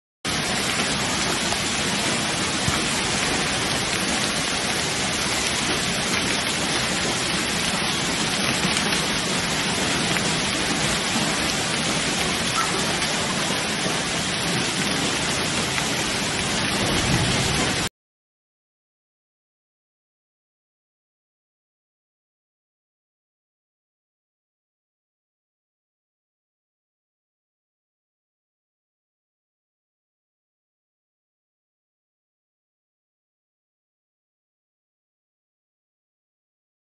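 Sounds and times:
heavy rain and hail: 0:00.3 - 0:17.9.

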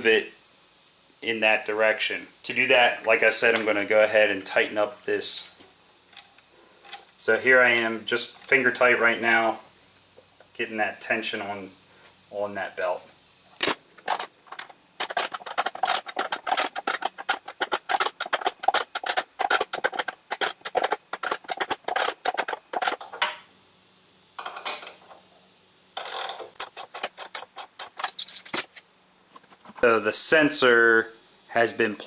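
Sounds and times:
ratchet wrench clicking: 0:13.6 - 0:23.4, 0:26.0 - 0:28.7.

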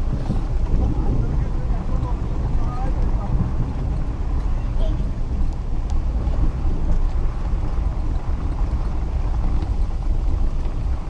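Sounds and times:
heavy rain hissing: 0:00.0 - 0:08.4
faint ticks of raindrops: 0:00.0 - 0:11.0
vehicle rumbling: 0:00.0 - 0:11.0.

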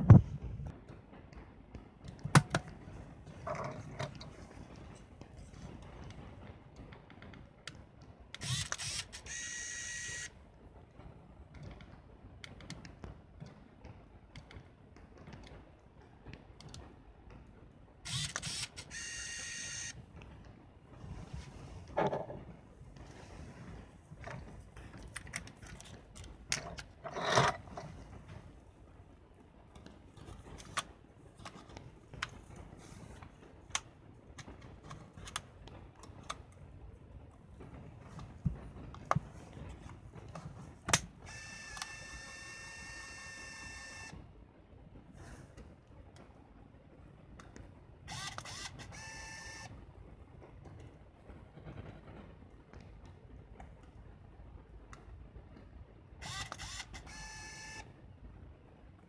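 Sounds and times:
camera motor clicking and whirring: 0:08.4 - 0:10.3, 0:18.1 - 0:20.0, 0:40.9 - 0:44.1, 0:48.1 - 0:49.7, 0:56.2 - 0:57.8.

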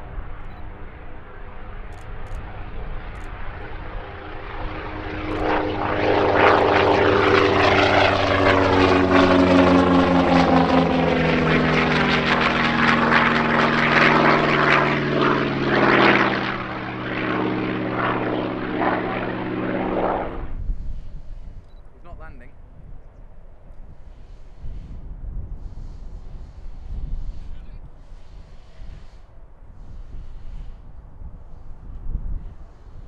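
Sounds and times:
propeller aircraft flying past: 0:00.0 - 0:33.0.

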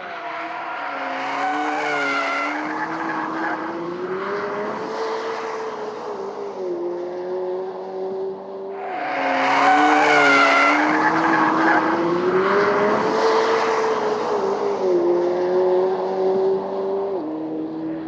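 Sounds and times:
tyres squealing and skidding: 0:00.0 - 0:03.9, 0:08.8 - 0:14.2
car engine revving hard: 0:08.8 - 0:17.7.

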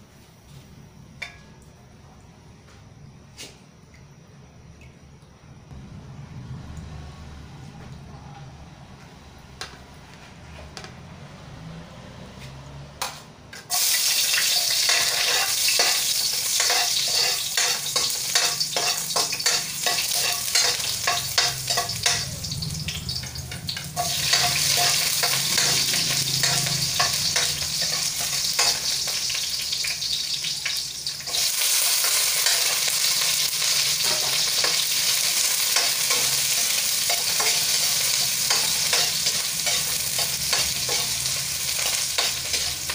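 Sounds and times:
low hum: 0:04.8 - 0:10.1
metal spatula scraping a pan: 0:13.6 - 0:22.6, 0:23.2 - 0:29.6, 0:31.3 - 0:42.9
food sizzling in hot oil: 0:13.6 - 0:42.9.

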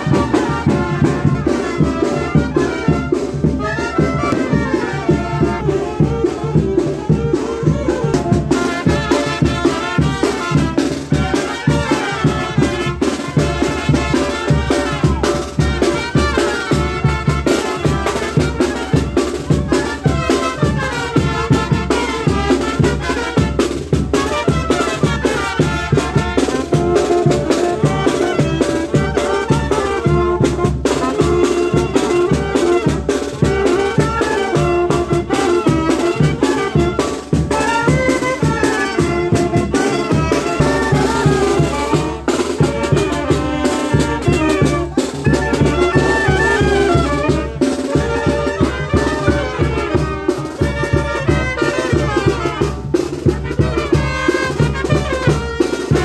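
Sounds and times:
brass instruments playing melody: 0:00.0 - 0:56.0
percussion: 0:00.0 - 0:56.0
bass drum beat: 0:16.7 - 0:56.0.

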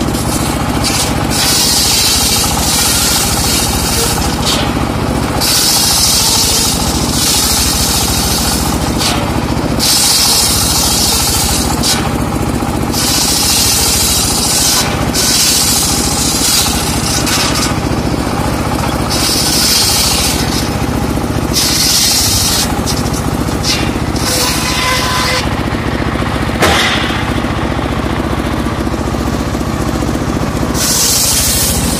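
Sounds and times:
saw blade rasping through wood: 0:00.0 - 0:25.7, 0:30.7 - 0:31.9
circular saw motor running: 0:00.0 - 0:31.9.

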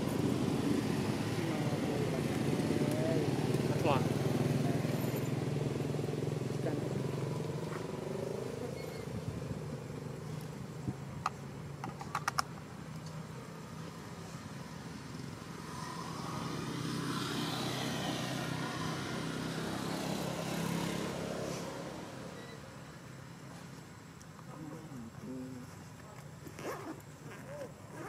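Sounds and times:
vehicle passing: 0:00.0 - 0:08.7, 0:15.5 - 0:22.4.

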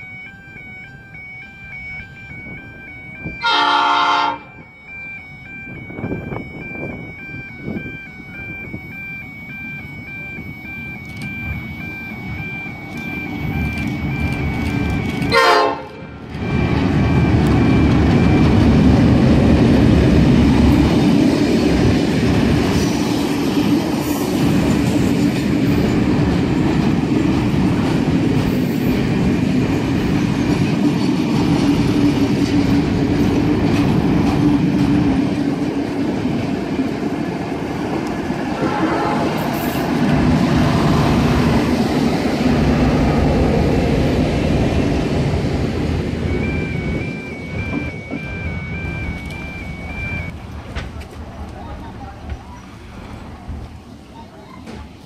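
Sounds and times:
diesel locomotive rumble: 0:00.0 - 0:55.0
train horn blast: 0:03.4 - 0:04.6, 0:15.3 - 0:16.2, 0:38.5 - 0:39.9
wheels rattling on rails: 0:04.3 - 0:55.0.

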